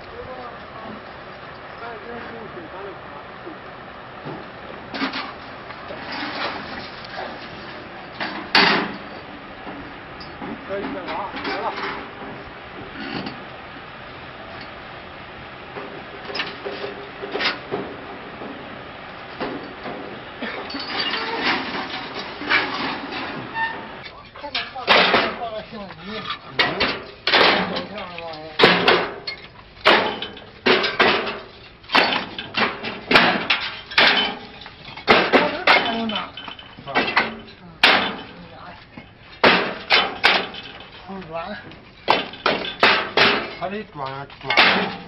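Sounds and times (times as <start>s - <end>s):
cart body scraping: 4.9s - 9.2s, 19.4s - 45.0s
bricks clattering: 20.5s - 23.5s, 24.4s - 41.1s, 41.8s - 45.0s.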